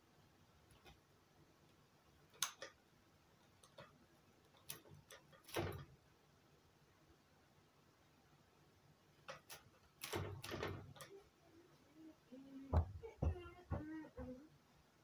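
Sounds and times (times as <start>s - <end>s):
fuller knock: 12.7s - 14.4s.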